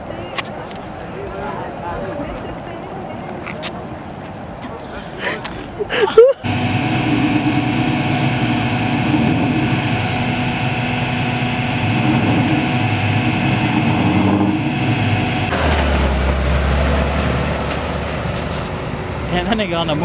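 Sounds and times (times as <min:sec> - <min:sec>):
tow truck winch droning: 0:06.4 - 0:19.9.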